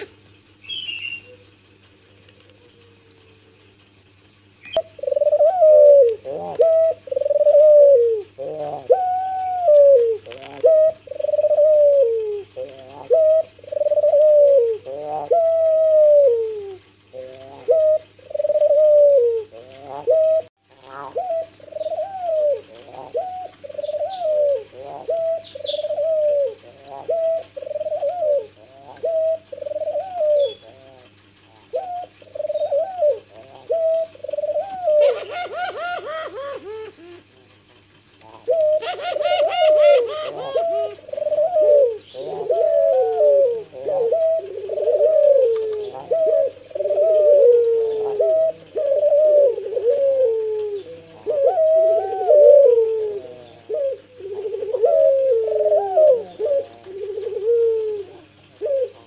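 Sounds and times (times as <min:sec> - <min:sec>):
rapid high chirping: 0:00.0 - 0:55.0
dove cooing: 0:00.0 - 0:59.0.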